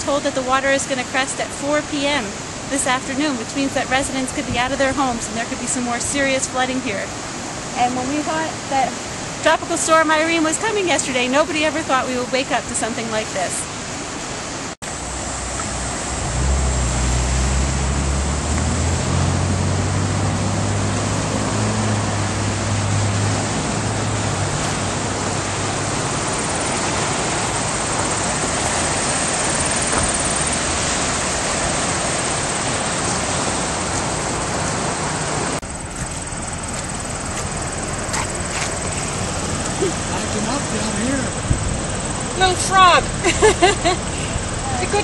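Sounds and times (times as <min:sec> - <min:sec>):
floodwater rushing: 0:00.0 - 0:45.0
low droning hum: 0:35.6 - 0:45.0.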